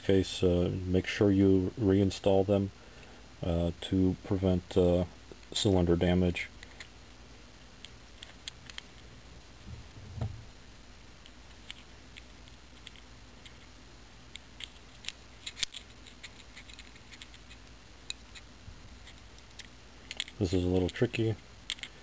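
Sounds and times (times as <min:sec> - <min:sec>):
soft low bump: 0:09.6 - 0:10.6
small metal parts clicking: 0:19.4 - 0:21.0.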